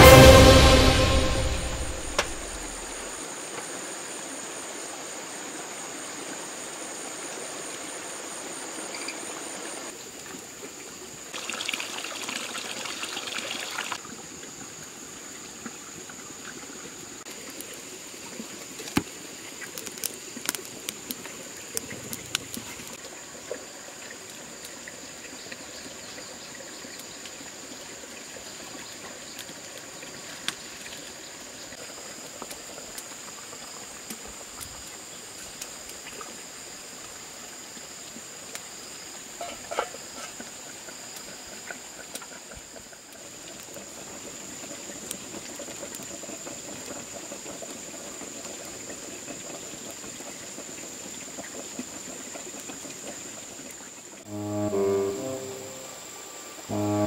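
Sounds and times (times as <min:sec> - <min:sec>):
water trickling: 0:11.4 - 0:32.0.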